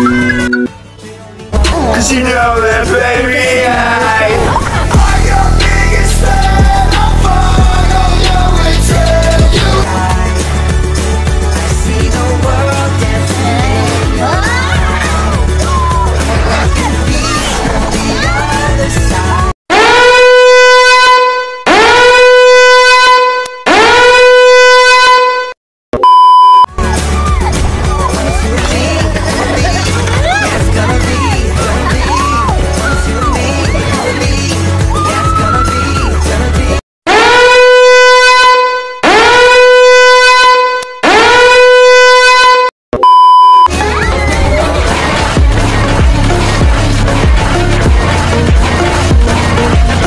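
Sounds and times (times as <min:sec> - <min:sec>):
test-tone beep: 0:00.0 - 0:00.7, 0:26.0 - 0:26.7, 0:43.0 - 0:43.7
music: 0:00.0 - 0:19.6, 0:26.7 - 0:38.2, 0:43.7 - 0:50.0
alarm horn blasts: 0:19.7 - 0:26.6, 0:37.1 - 0:43.6.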